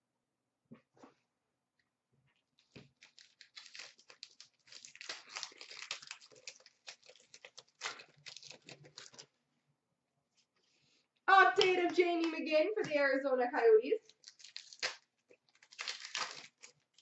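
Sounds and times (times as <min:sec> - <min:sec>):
card pack wrapper crinkling: 0:02.6 - 0:09.3, 0:14.0 - 0:17.0.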